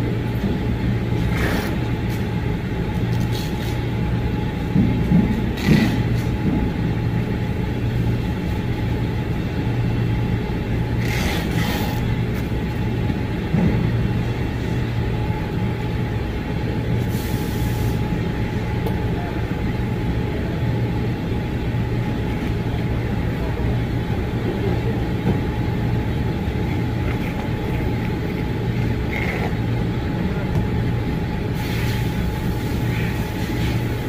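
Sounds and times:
thin steady whine: 0:00.0 - 0:34.0
vehicle engine rumble: 0:00.0 - 0:34.0
hissing air burst: 0:17.1 - 0:18.0, 0:31.6 - 0:33.8.

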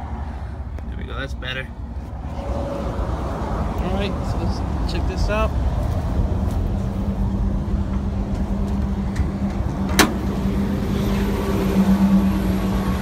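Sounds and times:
steady low rumble: 0:00.0 - 0:13.0
car hood latch click: 0:09.9 - 0:10.2.

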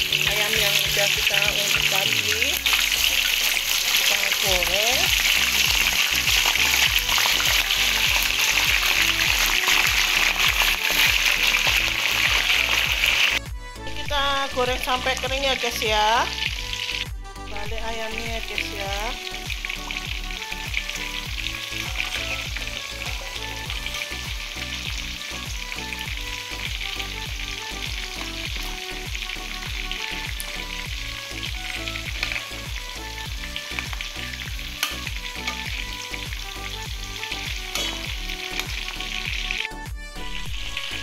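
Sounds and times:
chicken sizzling in hot oil: 0:00.0 - 0:13.4, 0:14.2 - 0:41.0
metal spatula clicking on pan: 0:34.8 - 0:35.6.

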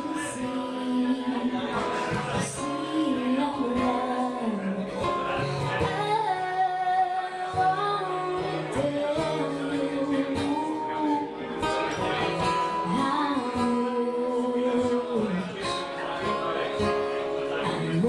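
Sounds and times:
woman singing: 0:00.0 - 0:05.1, 0:05.8 - 0:11.4, 0:12.7 - 0:15.6, 0:17.6 - 0:18.0
acoustic guitar strumming: 0:00.0 - 0:18.0.

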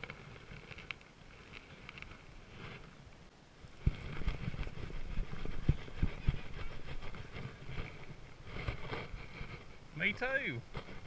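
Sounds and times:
reel and rod knocking and rattling: 0:03.8 - 0:11.0.

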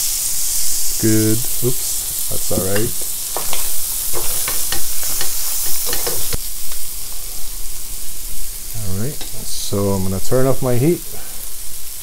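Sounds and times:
meat sizzling in oil: 0:00.0 - 0:12.0
spatula scraping pan: 0:01.6 - 0:06.4.

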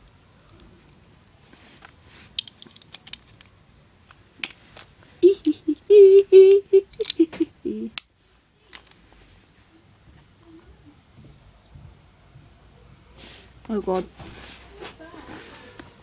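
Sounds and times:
plastic parts clicking: 0:00.5 - 0:05.6, 0:06.9 - 0:07.3, 0:08.7 - 0:09.0.

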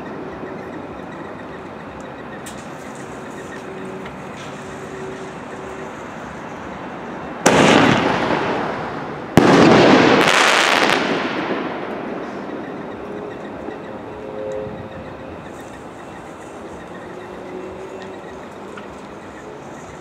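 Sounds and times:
firework mortar launch bang: 0:07.4 - 0:12.3.

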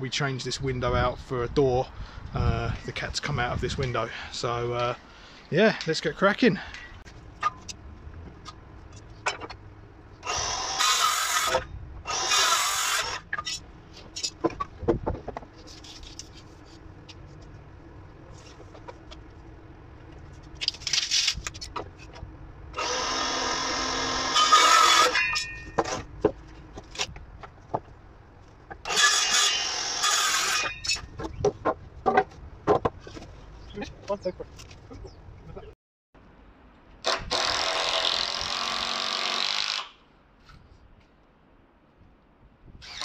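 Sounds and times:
power drill driving screws: 0:10.2 - 0:13.2, 0:22.8 - 0:25.2, 0:28.9 - 0:30.7, 0:37.0 - 0:40.0.

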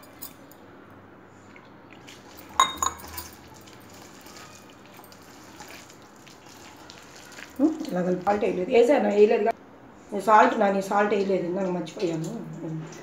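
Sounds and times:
metal bowl clinking: 0:02.3 - 0:05.9
hand mixing thick batter: 0:03.3 - 0:09.4.

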